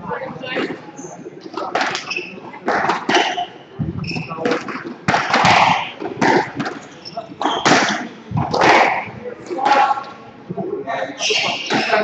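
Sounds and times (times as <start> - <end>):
squash ball cracking off rackets: 1.6 - 3.5, 4.4 - 10.1
shoes squeaking on wooden floor: 2.0 - 4.8, 5.4 - 8.0.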